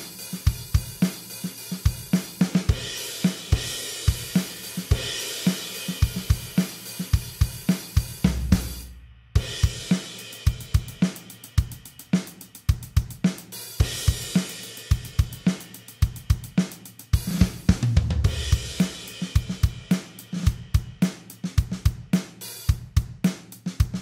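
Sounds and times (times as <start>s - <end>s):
crash cymbals: 0.0s - 12.5s
drum kit rock beat: 0.0s - 24.0s
tom fill: 1.8s - 23.2s.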